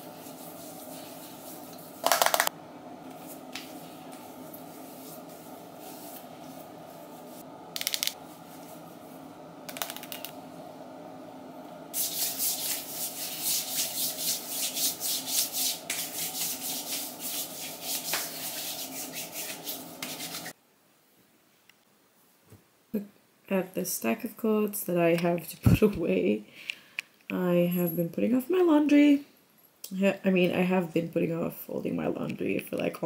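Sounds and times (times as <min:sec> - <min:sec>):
steady low hum: 0:00.0 - 0:20.6
hands rubbing skin: 0:12.0 - 0:20.5.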